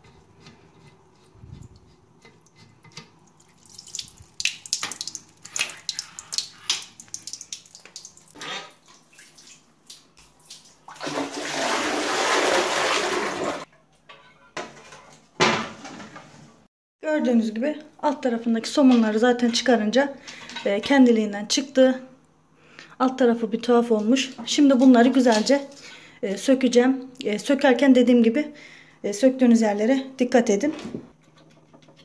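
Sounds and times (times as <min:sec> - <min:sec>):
water gushing into toilet bowl: 0:10.8 - 0:13.7.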